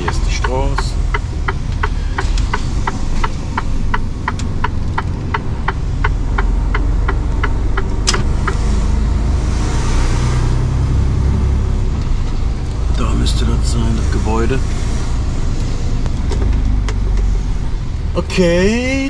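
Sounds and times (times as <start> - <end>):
turn indicator ticking: 0.0 - 9.3, 11.8 - 19.0
diesel engine drone: 0.0 - 19.0
sharp click: 0.1 - 8.6.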